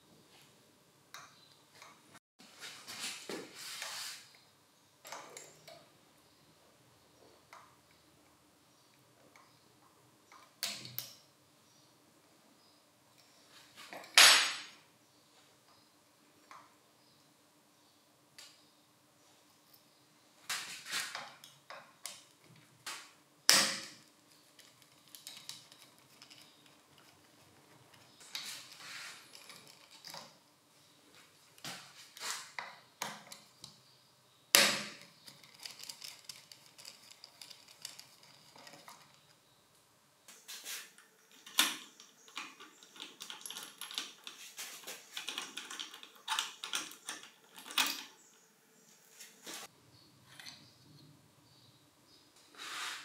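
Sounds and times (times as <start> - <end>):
metal parts clinking and scraping: 35.2 - 39.3.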